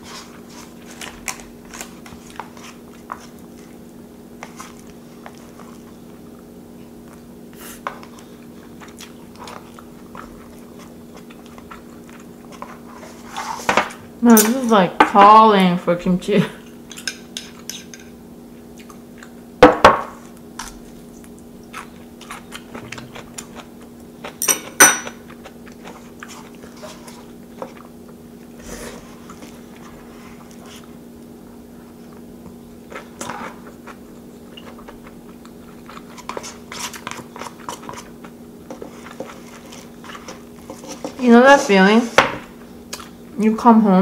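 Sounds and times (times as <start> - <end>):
chewing and crunching food: 0.0 - 13.6, 16.5 - 19.5, 20.2 - 41.3, 42.8 - 43.2
faint steady hum: 0.0 - 44.0.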